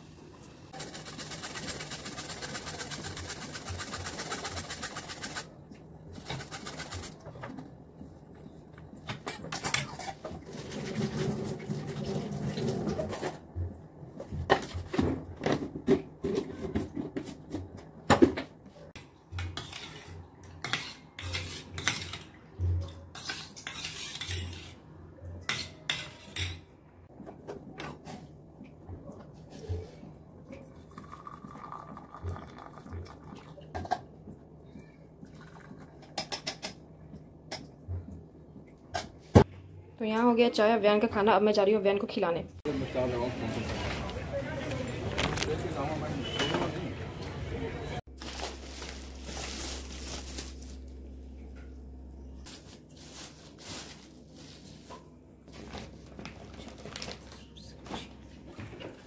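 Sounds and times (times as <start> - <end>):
grater scraping: 0.8 - 5.5
utensils clinking against dishes: 25.4 - 26.7.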